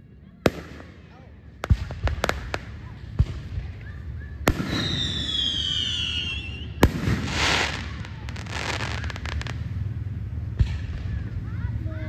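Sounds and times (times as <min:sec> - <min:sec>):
firework bangs: 0:00.5 - 0:11.4
firework crackling: 0:00.5 - 0:11.7
firework whistle descending: 0:04.6 - 0:07.8.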